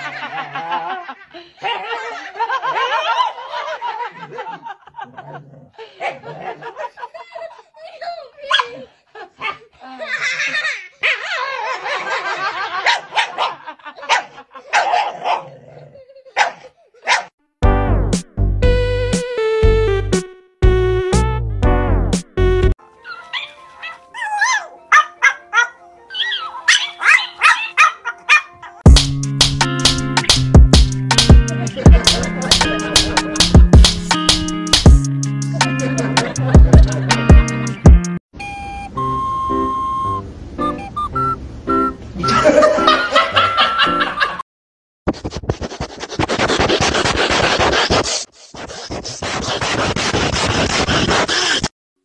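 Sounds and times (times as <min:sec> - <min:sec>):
laughter: 0:00.0 - 0:14.9, 0:15.7 - 0:17.2, 0:31.4 - 0:33.4, 0:35.5 - 0:37.4, 0:42.2 - 0:44.4
loud music: 0:17.6 - 0:22.7, 0:28.9 - 0:38.2
background music: 0:17.6 - 0:44.3
small dog yapping: 0:23.1 - 0:28.5.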